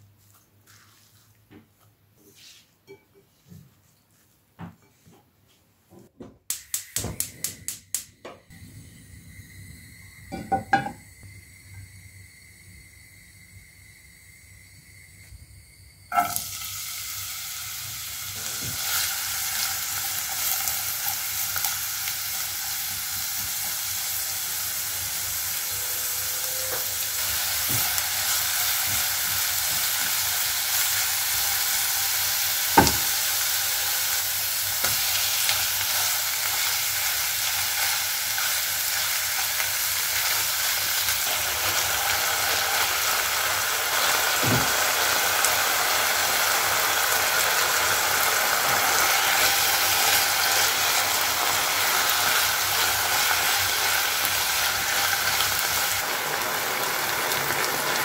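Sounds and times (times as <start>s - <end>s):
onion sizzling in hot oil: 8.6s - 58.0s.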